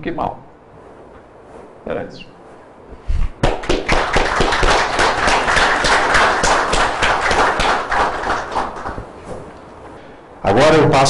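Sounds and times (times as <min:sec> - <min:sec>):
audience applauding: 0:03.4 - 0:09.0.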